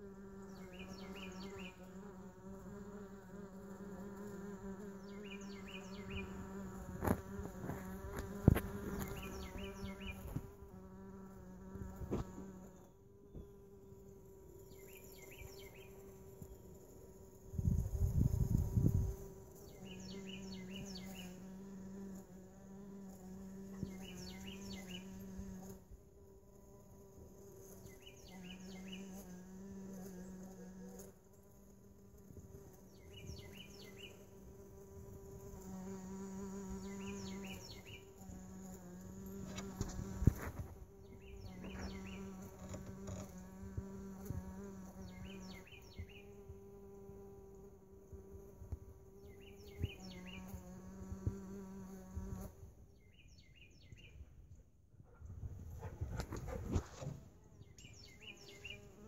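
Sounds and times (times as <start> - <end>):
bees buzzing: 0.0 - 54.0, 55.6 - 59.0.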